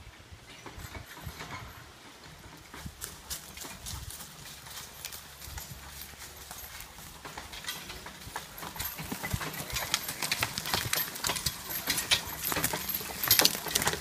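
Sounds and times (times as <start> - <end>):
hooves clattering: 0.2 - 14.0
harness and chain clinks: 0.5 - 14.0
wagon knocks: 5.6 - 14.0.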